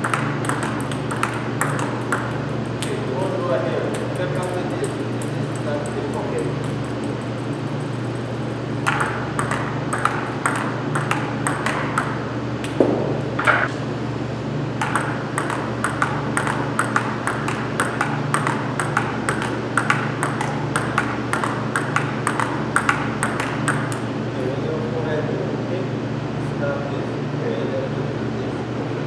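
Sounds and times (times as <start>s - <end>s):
table tennis ball clicking: 0.0s - 3.0s, 8.8s - 13.7s, 14.8s - 24.0s.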